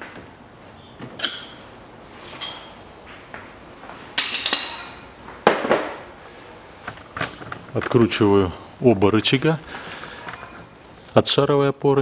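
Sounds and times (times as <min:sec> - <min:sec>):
steel hand tools clinking: 0:04.2 - 0:05.0.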